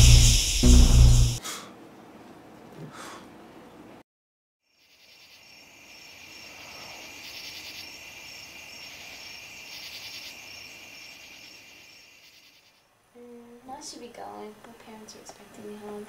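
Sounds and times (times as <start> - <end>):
crickets chirping: 0.0 - 1.4, 4.6 - 13.0
shrill pulsing insect call: 0.0 - 1.4, 4.6 - 12.9.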